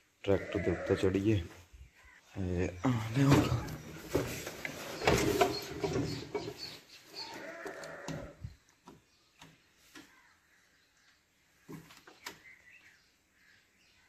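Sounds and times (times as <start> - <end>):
farm animal bleating: 0.2 - 1.5, 7.2 - 8.5.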